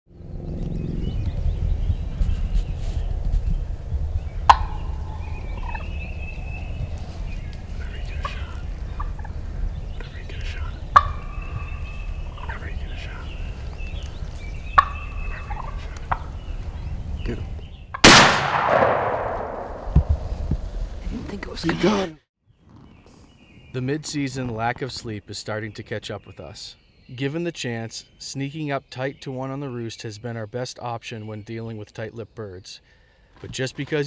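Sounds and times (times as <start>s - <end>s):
steady low rumble: 0.1s - 21.4s
turkey gobbling: 4.4s - 6.0s, 7.7s - 16.5s.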